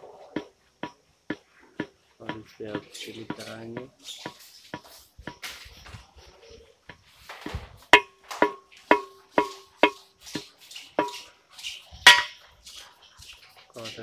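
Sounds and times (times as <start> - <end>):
ringing knocks on copper pipe: 7.9 - 10.0, 12.1 - 12.3.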